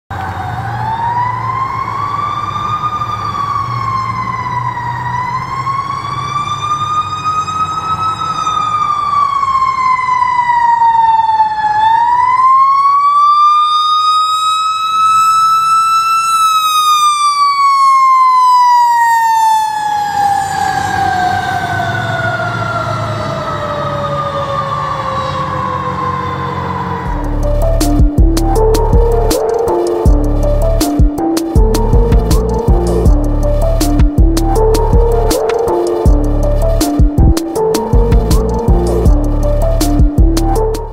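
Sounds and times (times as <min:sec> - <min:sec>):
fire engine siren wailing: 0:00.1 - 0:40.9
low rumble: 0:27.1 - 0:29.4, 0:30.1 - 0:35.4, 0:36.1 - 0:40.9.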